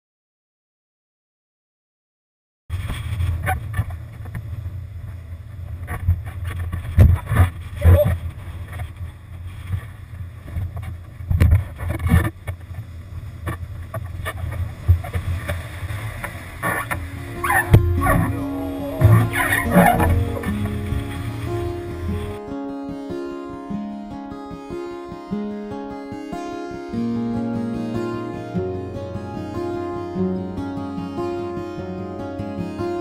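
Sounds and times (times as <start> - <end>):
water splashes: 13.5 - 22.4.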